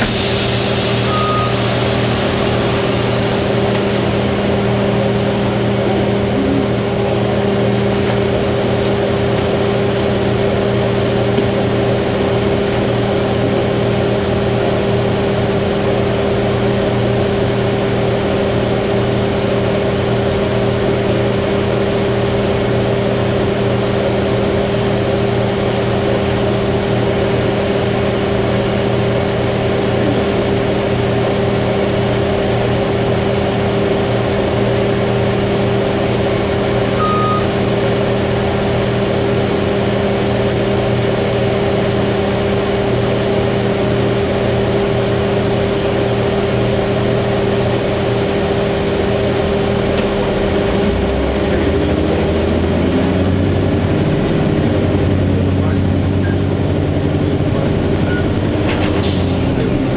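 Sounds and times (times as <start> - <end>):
bus engine drone: 0.0 - 59.9
short high beep: 1.0 - 1.9, 37.0 - 37.5.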